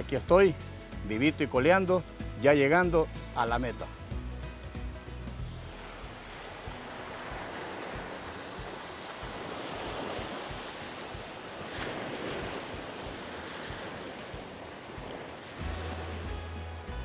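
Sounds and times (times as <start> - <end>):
waves washing up beach: 5.4 - 17.0
wind buffeting microphone: 5.8 - 15.7.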